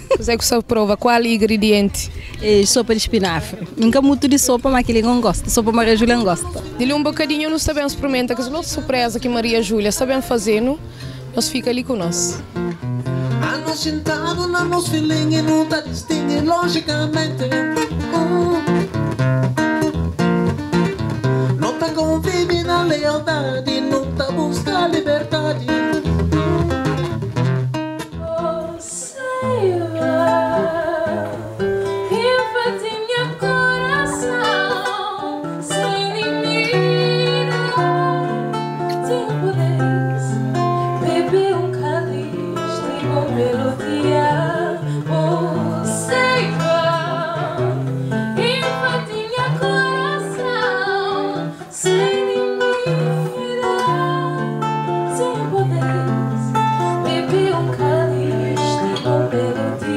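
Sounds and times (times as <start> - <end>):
acoustic guitar: 0.0 - 59.9
man singing into a microphone: 13.4 - 18.8, 21.6 - 26.8, 57.0 - 59.9.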